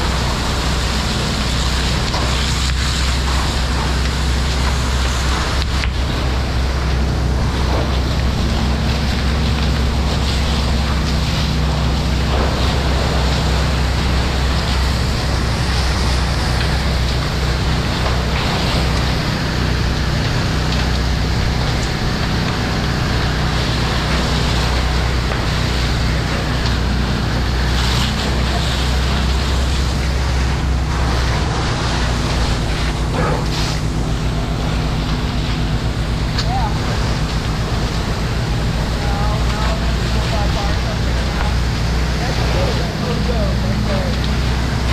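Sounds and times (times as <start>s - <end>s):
engine humming: 0.0s - 44.9s
hose spraying water: 0.0s - 44.9s.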